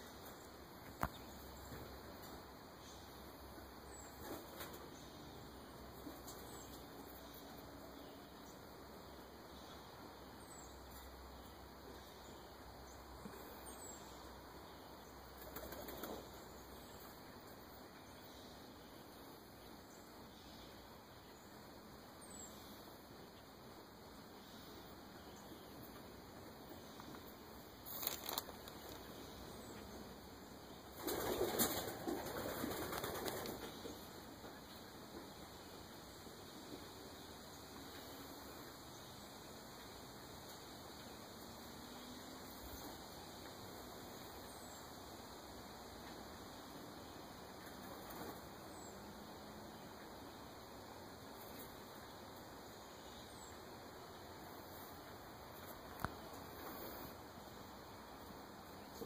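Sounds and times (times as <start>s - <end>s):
pigeon wings flapping: 31.0s - 33.8s.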